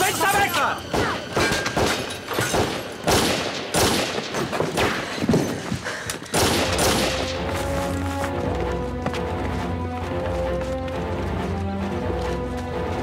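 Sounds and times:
dramatic music with low drone: 0.0s - 4.4s, 6.3s - 13.0s
rapid rifle shots: 1.8s - 5.0s, 6.3s - 7.3s.

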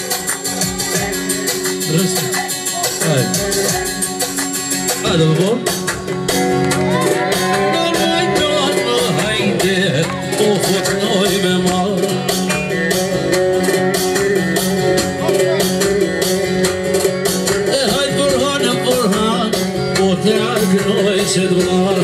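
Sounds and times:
man singing into a microphone: 0.0s - 4.0s, 7.0s - 12.5s, 17.6s - 22.0s
live band music: 0.0s - 22.0s.

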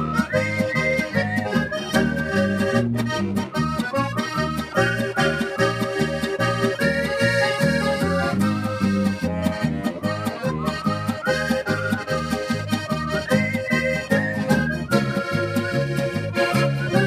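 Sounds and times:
button accordion melody: 0.0s - 17.0s
electric guitar strumming: 0.0s - 17.0s.

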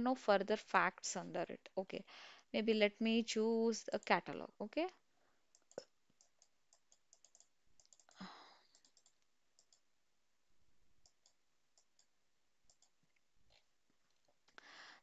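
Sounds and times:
short breath: 2.1s - 2.5s, 14.6s - 15.0s
computer mouse clicks: 5.5s - 9.8s, 11.0s - 12.1s, 12.7s - 13.0s.

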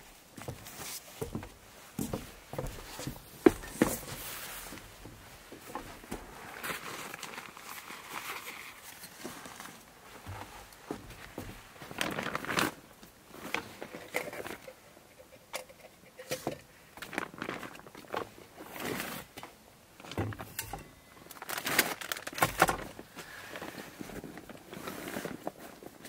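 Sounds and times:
rustling and light knocks: 0.4s - 7.1s, 8.8s - 12.1s.

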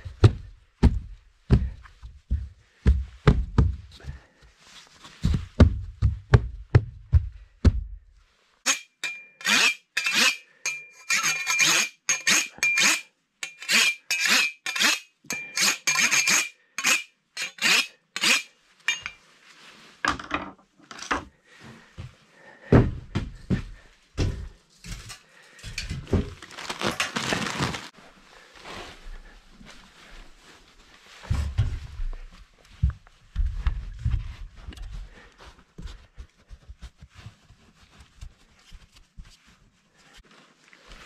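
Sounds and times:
dull thumps and rustling: 0.0s - 4.3s, 4.9s - 8.1s, 31.1s - 35.2s.

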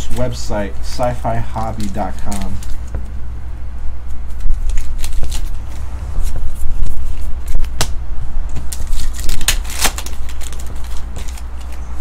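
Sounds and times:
foil wrapper crinkling: 1.7s - 2.9s, 4.3s - 7.7s, 8.5s - 12.0s.

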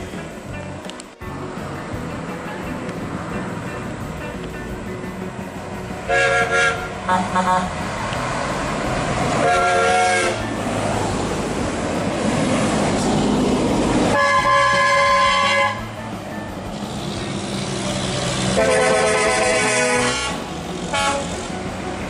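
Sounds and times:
diesel engines and tyres passing: 0.0s - 22.0s
truck air horn blasts: 6.1s - 7.8s, 9.4s - 10.4s, 14.1s - 15.9s, 18.5s - 21.5s.

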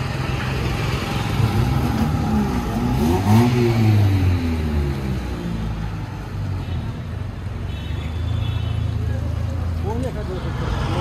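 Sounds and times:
street traffic: 0.0s - 11.0s
vehicle engine revving: 0.8s - 5.9s.

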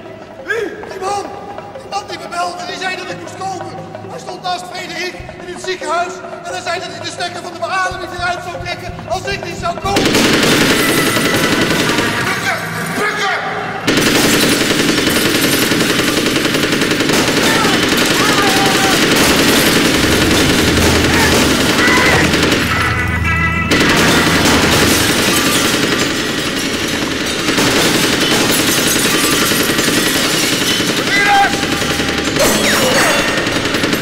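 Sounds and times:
automatic gunfire bursts: 10.0s - 12.5s, 13.9s - 22.8s, 23.7s - 34.0s.

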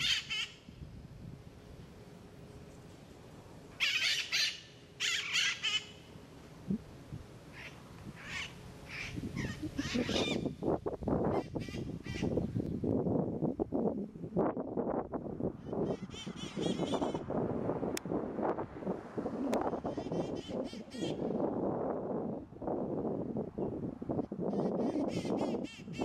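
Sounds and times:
parakeets screeching: 0.0s - 0.5s, 3.8s - 5.9s, 7.5s - 10.5s, 15.6s - 17.2s, 19.8s - 21.2s
low rough noise: 0.0s - 24.4s.

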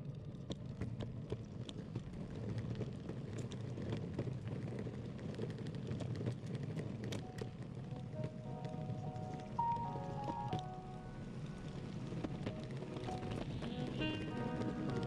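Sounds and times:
skateboard wheels rumbling on road: 0.0s - 15.0s
small irregular clicks: 0.0s - 15.0s.

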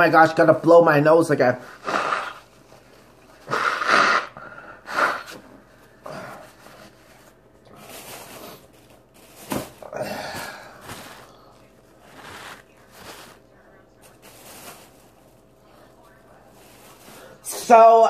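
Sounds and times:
person blowing nose into tissue: 1.6s - 5.4s.

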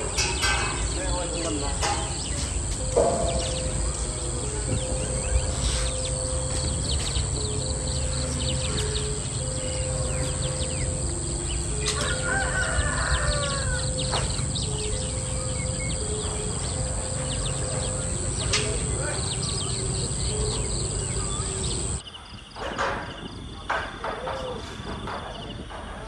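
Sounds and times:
slow tune of long notes: 0.0s - 22.0s
high insect drone: 0.0s - 22.2s
birds chirping: 0.0s - 25.9s
rooster crowing: 9.4s - 22.0s.

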